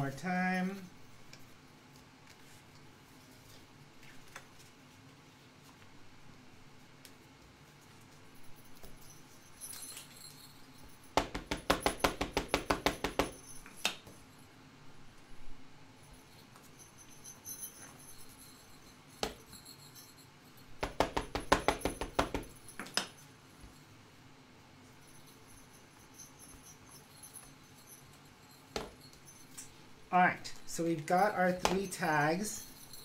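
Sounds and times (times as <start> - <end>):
ink pad tapping on rubber stamp: 11.2 - 13.4, 20.8 - 23.1.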